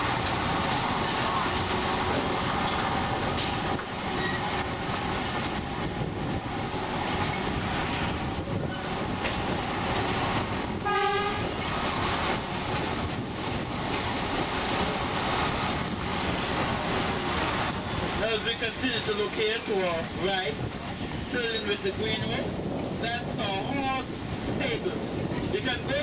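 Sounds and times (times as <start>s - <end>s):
train wheels rumbling on rails: 0.0s - 26.0s
train horn toot: 10.8s - 11.5s.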